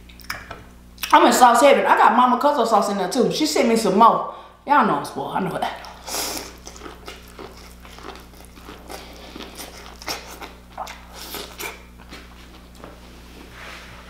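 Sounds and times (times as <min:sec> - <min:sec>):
biting and chewing corn: 0:06.3 - 0:12.9.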